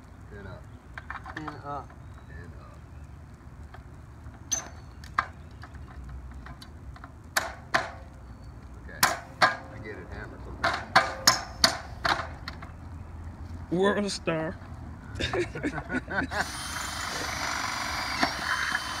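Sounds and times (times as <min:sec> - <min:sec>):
metal clanging on ladder: 0:10.6 - 0:12.4.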